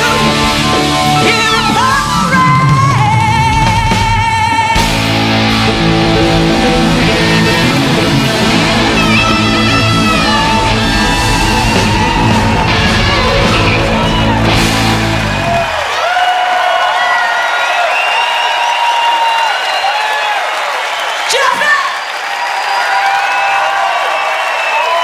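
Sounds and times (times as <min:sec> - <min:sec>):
electric guitar lead with bends: 0:00.0 - 0:15.8
rock band playing loudly: 0:00.0 - 0:16.0.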